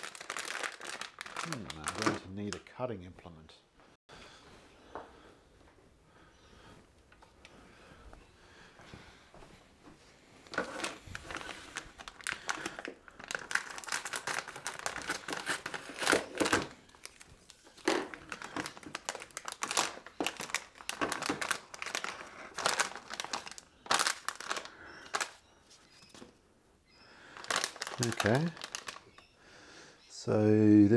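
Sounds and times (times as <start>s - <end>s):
plastic bag crinkling: 0.0s - 2.6s, 10.4s - 26.1s, 27.2s - 29.3s.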